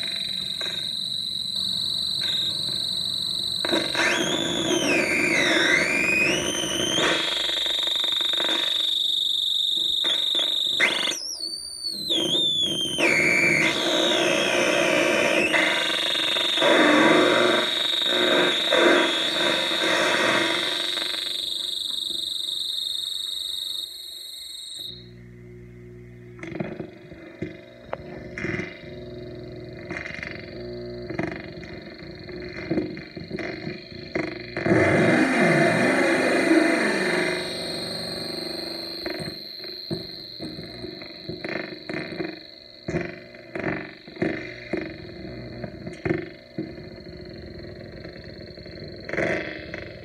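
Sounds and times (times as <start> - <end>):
static: 0.0 - 11.3, 11.9 - 50.0
high whistling tones: 0.0 - 25.1, 31.1 - 43.1
noise synthesizer squealing: 0.0 - 25.1, 26.4 - 50.0.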